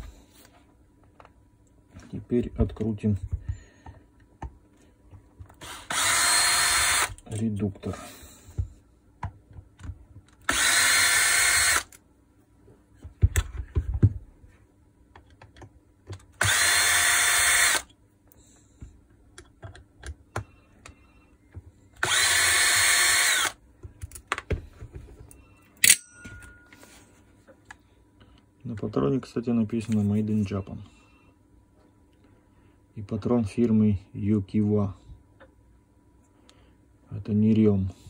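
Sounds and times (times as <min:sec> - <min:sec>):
cordless drill motor running: 0:05.6 - 0:07.2, 0:10.4 - 0:12.0, 0:16.4 - 0:17.9, 0:22.0 - 0:23.6.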